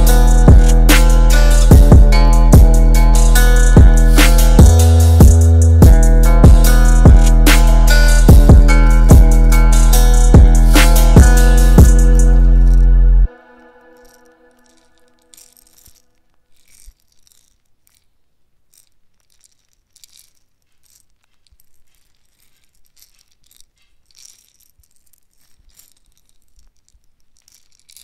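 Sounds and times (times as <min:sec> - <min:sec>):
instrumental beat melody: 0:00.0 - 0:14.4.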